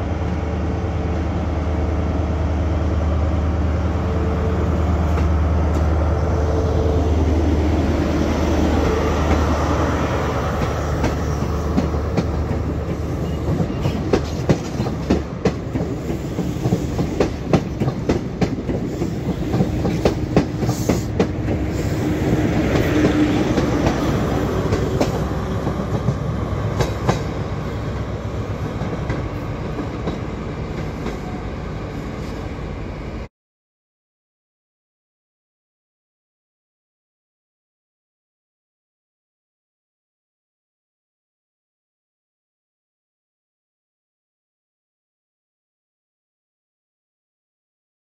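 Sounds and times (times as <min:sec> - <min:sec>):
train wheels clickety-clack: 0:10.5 - 0:31.4.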